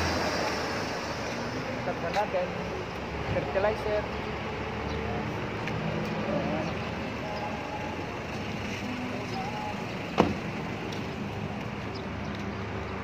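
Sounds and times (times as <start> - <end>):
vehicle engines idling: 0.0 - 13.0.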